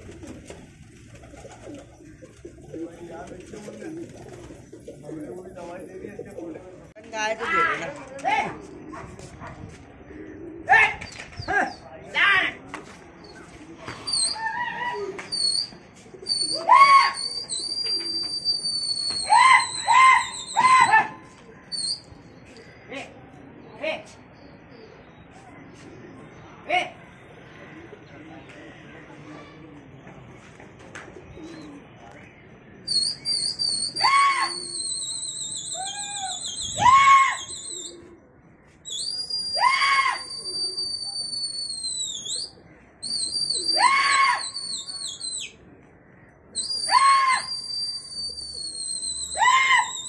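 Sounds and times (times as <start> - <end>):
harsh bird calls: 13.2 - 23.2, 31.3 - 50.0
shrill high whistle: 15.4 - 20.9, 32.9 - 37.9, 38.9 - 45.5, 46.6 - 50.0.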